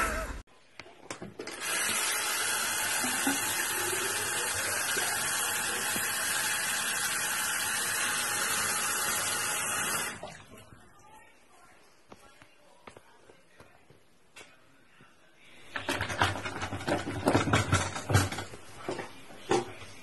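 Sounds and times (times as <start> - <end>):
water running into basin: 1.0 - 11.3.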